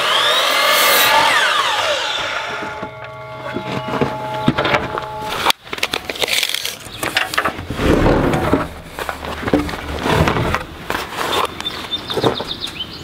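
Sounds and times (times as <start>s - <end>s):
steady hum: 0.7s - 5.7s
wooden boards knocking and scraping: 7.0s - 12.5s.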